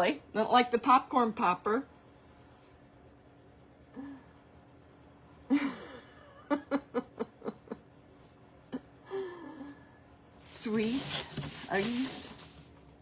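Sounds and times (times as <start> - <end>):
woman laughing: 5.5 - 8.0.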